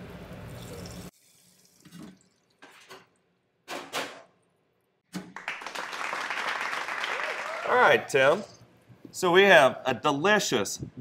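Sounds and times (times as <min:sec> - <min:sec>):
hot oil sizzling: 0:00.4 - 0:01.8.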